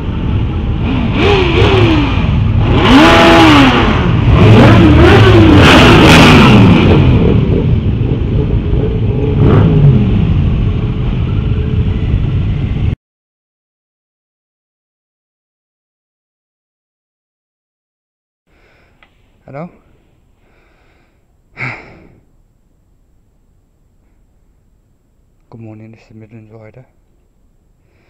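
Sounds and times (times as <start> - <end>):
motorcycle engines revving: 0.0 - 12.9
road and wind rush: 0.0 - 13.0.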